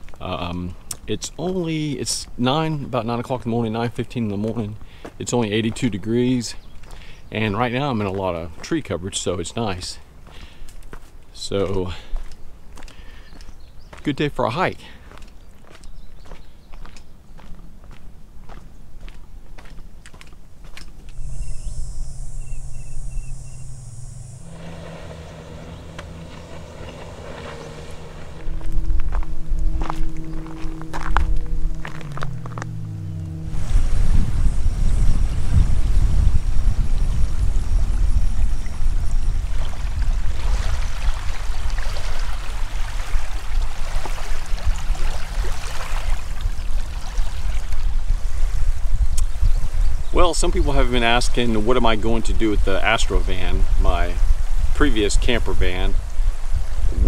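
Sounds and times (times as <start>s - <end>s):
outdoor ambience: 0.0s - 57.0s
footsteps on dirt trail: 6.6s - 7.1s, 10.1s - 14.2s, 14.8s - 21.3s, 25.4s - 33.2s
bird chirps: 15.4s - 17.5s, 21.1s - 33.4s
high insect buzz: 21.0s - 36.5s
wind buffeting microphone: 21.0s - 57.0s
strong low rumble: 21.1s - 41.6s, 56.0s - 57.0s
small waves lapping on gravel shore: 39.5s - 48.0s.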